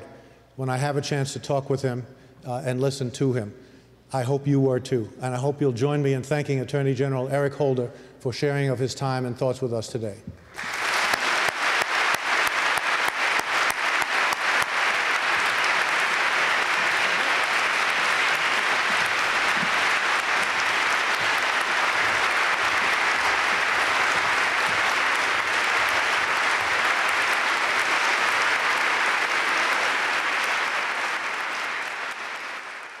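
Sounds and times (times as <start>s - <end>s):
audience applauding: 10.5s - 33.0s.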